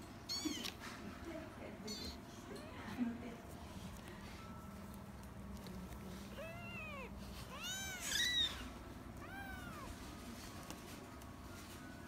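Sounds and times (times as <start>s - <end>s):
kittens mewing: 0.2s - 0.8s, 1.7s - 2.9s, 6.3s - 10.0s.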